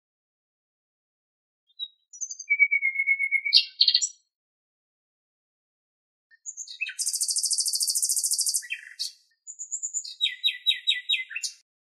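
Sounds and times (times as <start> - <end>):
nightingale singing: 1.7 - 4.3, 6.3 - 11.7.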